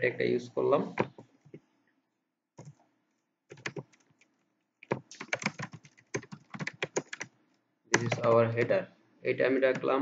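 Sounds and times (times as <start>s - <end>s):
typing on computer keyboard: 2.6s - 2.8s, 3.5s - 7.3s, 7.9s - 8.7s.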